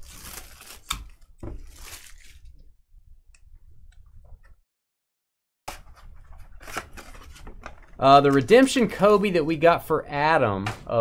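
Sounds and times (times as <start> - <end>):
card packs rustling and clicking: 0.0 - 2.5, 5.7 - 9.1.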